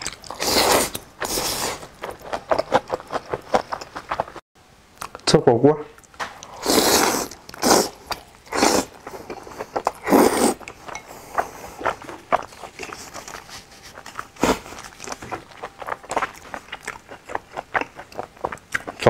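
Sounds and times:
noisy wet chewing: 0:00.0 - 0:04.4, 0:06.0 - 0:19.0
person slurping noodles: 0:00.3 - 0:01.9, 0:06.4 - 0:14.9.

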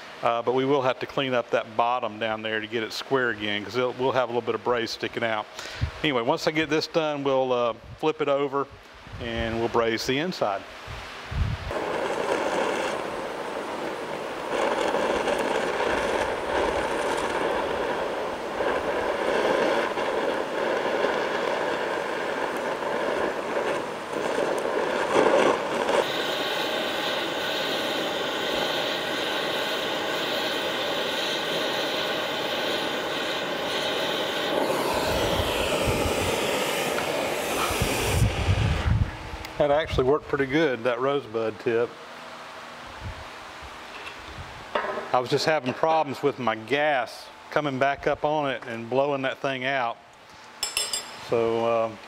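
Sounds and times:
gas torch hissing: 0:05.4 - 0:06.6, 0:08.8 - 0:41.6
faint torch whistle: 0:11.7 - 0:39.2.

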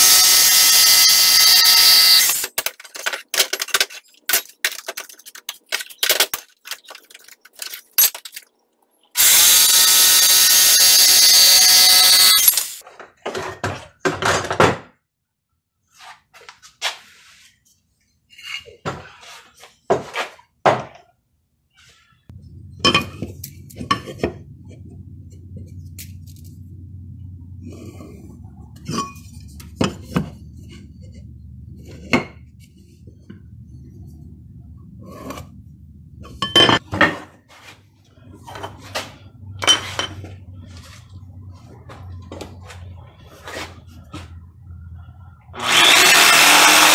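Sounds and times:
jigsaw cutting wood: 0:09.2 - 0:12.8, 0:45.6 - 0:46.9
low steady hum: 0:22.3 - 0:36.8.

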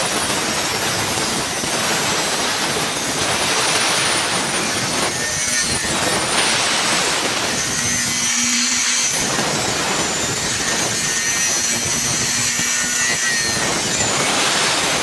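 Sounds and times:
angle grinder cutting metal: 0:00.0 - 0:15.0.

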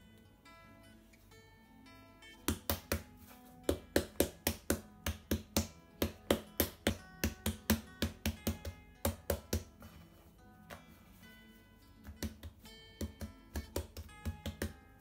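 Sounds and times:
soft guitar music: 0:00.0 - 0:15.0
palm slapping dough on board: 0:02.4 - 0:09.9, 0:12.0 - 0:15.0.

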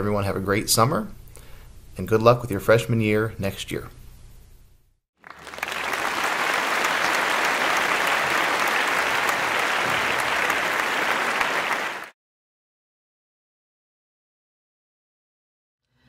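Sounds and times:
crowd applause: 0:05.2 - 0:12.2.

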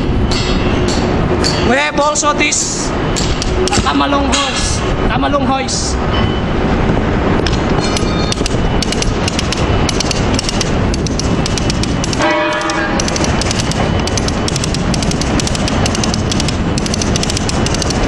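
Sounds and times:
loud steady rumble: 0:00.0 - 0:18.0
brief squeal: 0:06.1 - 0:06.5
hoist ratchet clicking rapidly: 0:07.9 - 0:18.0.

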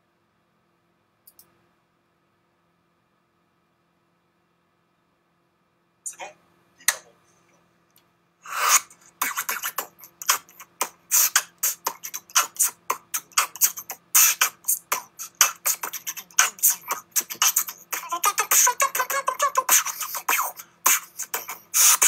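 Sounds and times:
beatboxing clicks and hisses: 0:08.4 - 0:22.0.

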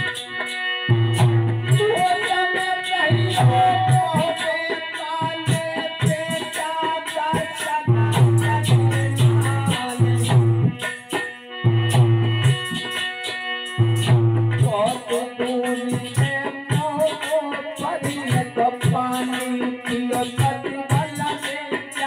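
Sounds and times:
hand percussion striking: 0:00.0 - 0:22.0
harmonium chords and melody: 0:00.0 - 0:22.0.

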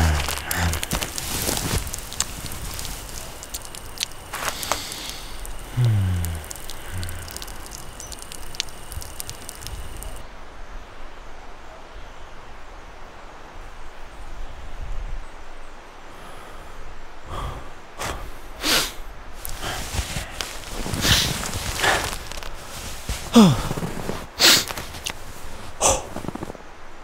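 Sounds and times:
faint clicks: 0:00.0 - 0:10.2.

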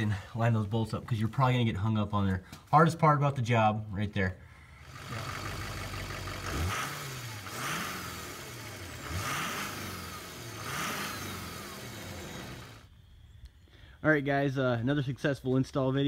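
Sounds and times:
vehicle engine revving: 0:04.8 - 0:12.9.

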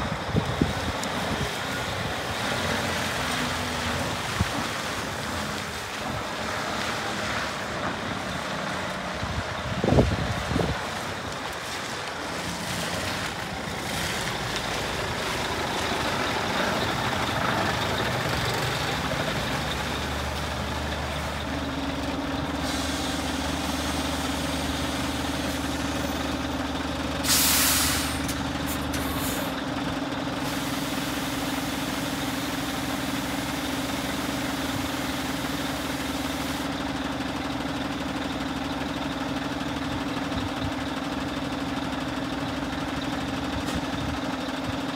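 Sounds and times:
diesel truck engine running: 0:00.0 - 0:44.9
air brakes hissing: 0:22.6 - 0:24.1, 0:27.2 - 0:29.6.

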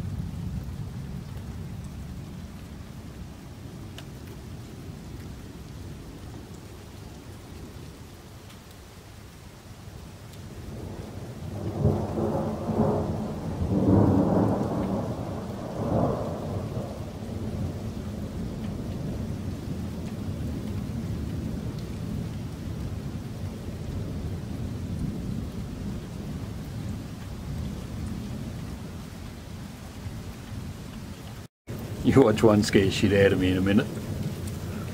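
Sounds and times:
steady rain: 0:00.0 - 0:34.9
thunder rumbling: 0:10.5 - 0:30.9, 0:31.7 - 0:34.9.

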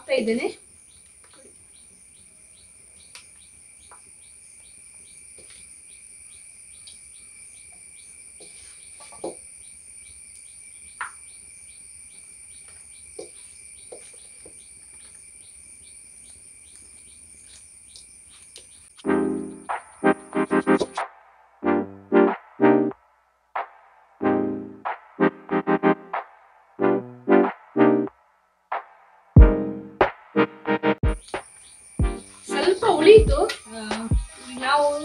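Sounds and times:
insects chirping: 0:00.0 - 0:21.1, 0:31.0 - 0:35.0
sharp insect clicks: 0:03.0 - 0:04.1, 0:06.3 - 0:07.8, 0:31.2 - 0:34.4.

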